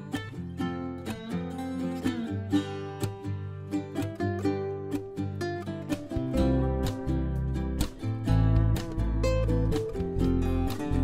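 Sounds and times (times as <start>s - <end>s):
plucked acoustic guitar music: 0.0s - 11.0s
deep bass notes: 6.3s - 11.0s.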